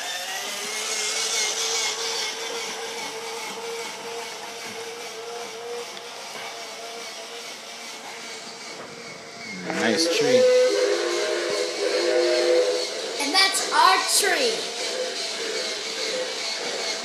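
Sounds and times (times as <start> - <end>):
toy train motor whining: 0.0 - 17.0
rushing hiss: 7.6 - 17.0.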